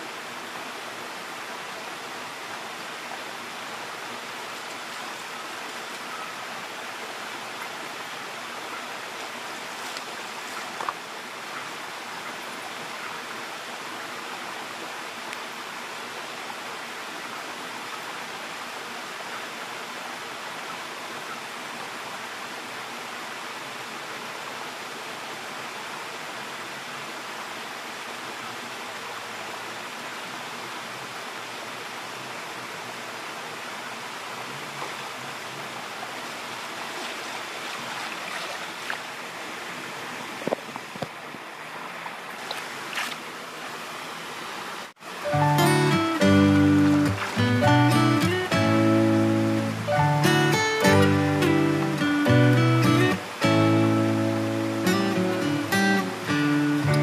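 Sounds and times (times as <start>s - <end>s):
creek running over rocks: 0.0s - 57.0s
water splash: 46.2s - 48.4s.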